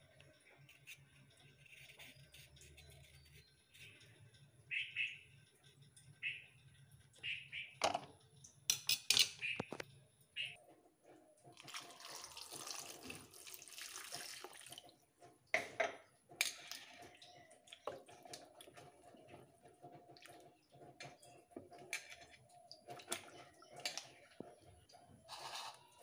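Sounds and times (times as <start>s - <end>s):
water pouring onto plate: 11.6s - 15.0s.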